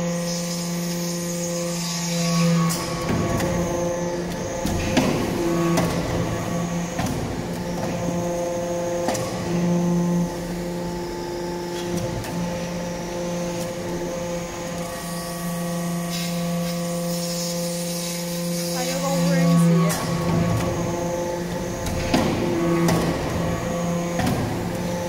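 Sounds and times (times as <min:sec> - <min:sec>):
hydraulic pump hum: 0:00.0 - 0:25.0.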